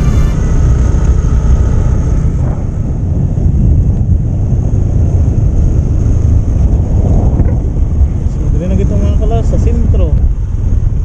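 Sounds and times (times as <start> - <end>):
motorcycle engine: 0.0 - 8.4
road noise: 0.0 - 11.0
wind buffeting microphone: 0.0 - 11.0.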